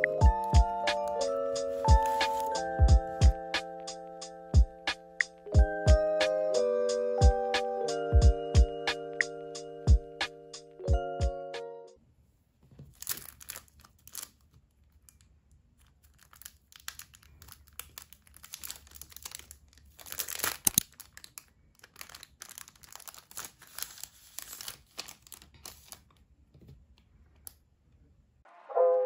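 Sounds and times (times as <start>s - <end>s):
plastic sleeve crinkling: 0.0s - 2.8s, 12.6s - 26.2s.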